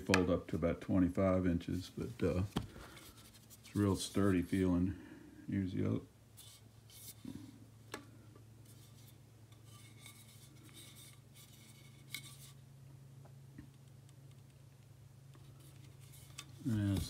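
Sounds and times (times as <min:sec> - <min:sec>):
steady low hum: 0:00.0 - 0:17.0
soft rustles: 0:01.7 - 0:04.7, 0:15.4 - 0:17.0.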